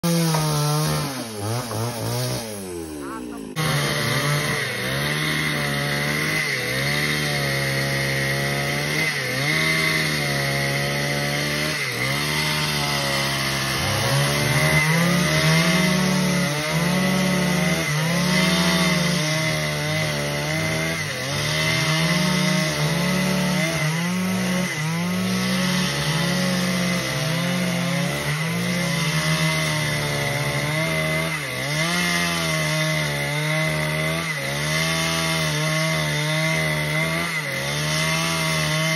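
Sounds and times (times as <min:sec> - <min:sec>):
chainsaw cutting wood: 0:00.0 - 0:38.9.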